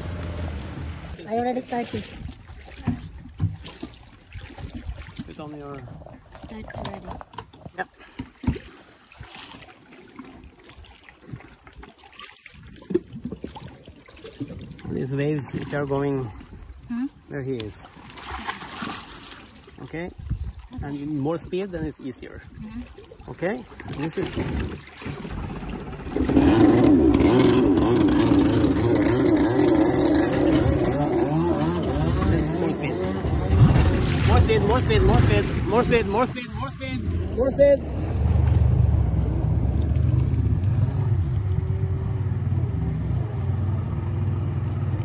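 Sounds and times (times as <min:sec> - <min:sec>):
jet ski engine revving: 0:00.0 - 0:01.6, 0:25.2 - 0:45.0
water sloshing and trickling: 0:00.0 - 0:45.0.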